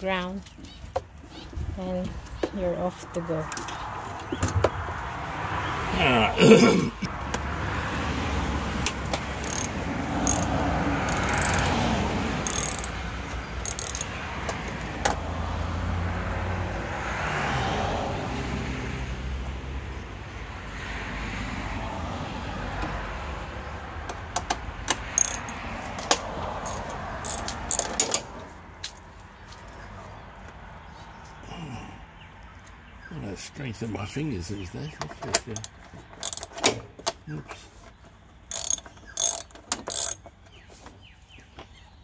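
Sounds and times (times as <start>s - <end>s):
road traffic passing: 0.0s - 42.0s.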